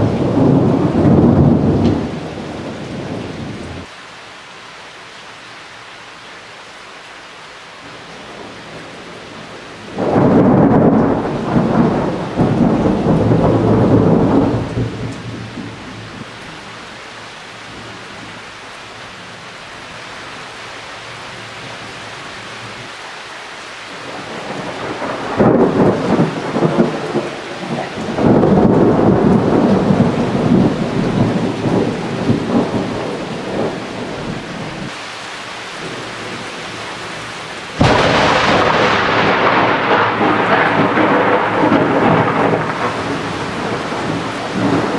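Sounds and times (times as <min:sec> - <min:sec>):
thunder claps and rumbles: 0:00.0 - 0:03.9, 0:09.9 - 0:16.4, 0:24.0 - 0:35.0, 0:37.8 - 0:44.9
rain hissing: 0:00.0 - 0:44.9.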